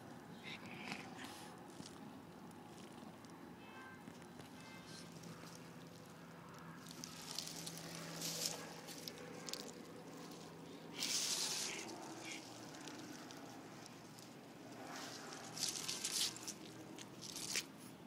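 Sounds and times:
dry leaves rustling: 4.8s - 17.7s.

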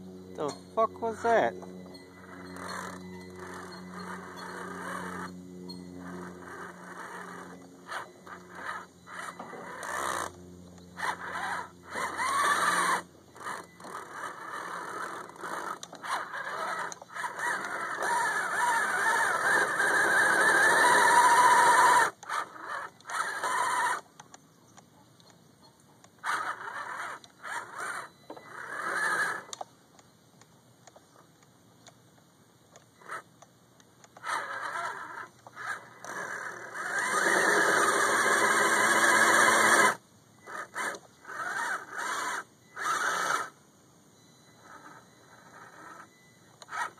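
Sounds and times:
rc truck motor whining: 0.0s - 24.4s, 26.0s - 29.7s, 32.8s - 33.4s, 34.0s - 43.6s, 44.2s - 46.9s.

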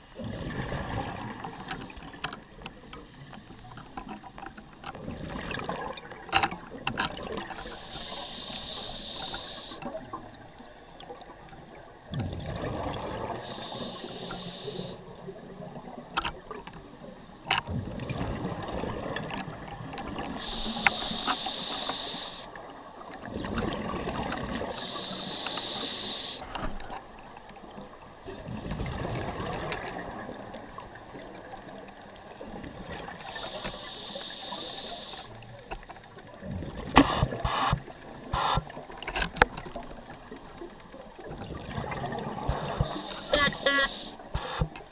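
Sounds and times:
regulator inhalation hiss: 7.6s - 9.9s, 13.4s - 15.0s, 20.4s - 22.6s, 24.7s - 26.5s, 33.2s - 35.4s, 37.0s - 38.7s, 42.5s - 44.8s
exhaled air bubbling: 41.2s - 44.9s.

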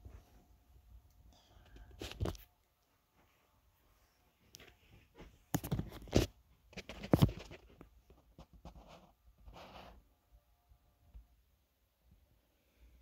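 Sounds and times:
scratchy rustle: 5.1s - 10.0s.

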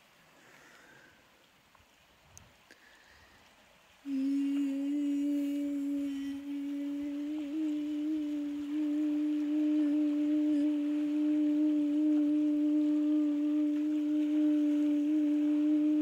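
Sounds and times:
person humming low note: 4.1s - 16.0s.

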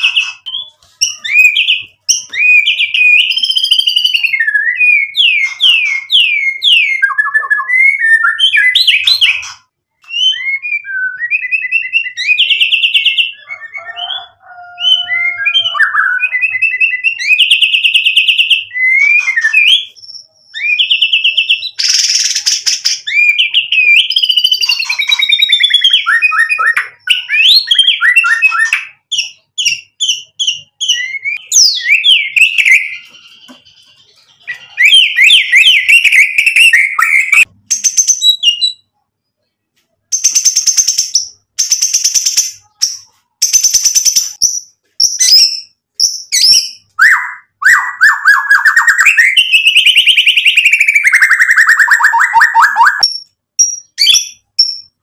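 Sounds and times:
songbird singing varied song: 0.0s - 39.4s.

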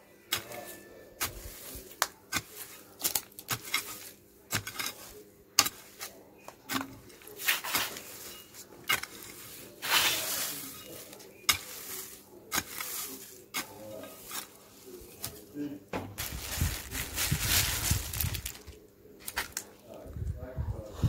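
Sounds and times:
hoe chopping stony soil: 0.3s - 15.4s.

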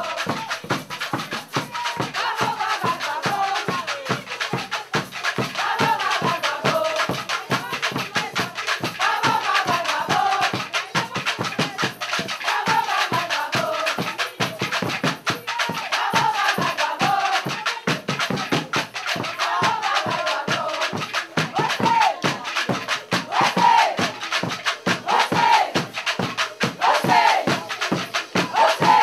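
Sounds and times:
fast percussion beat: 0.0s - 29.0s
voices singing: 0.0s - 29.0s.

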